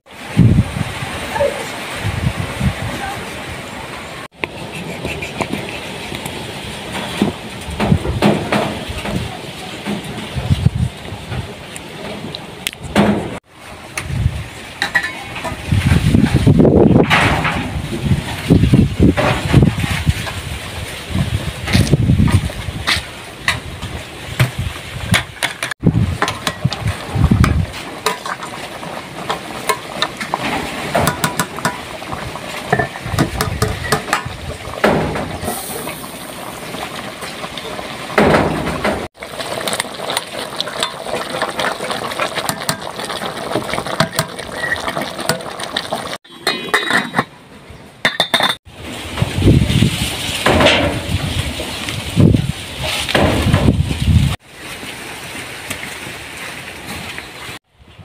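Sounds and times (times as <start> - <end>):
dishes and utensils clattering: 14.8 - 15.6, 29.3 - 31.9, 32.7 - 35.4, 46.2 - 47.4, 48.0 - 48.6.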